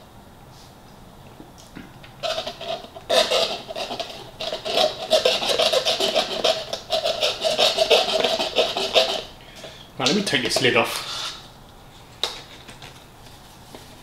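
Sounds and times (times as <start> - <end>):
plastic straw squeaking in lid: 2.2 - 9.3
slushy ice stirring: 2.2 - 9.4.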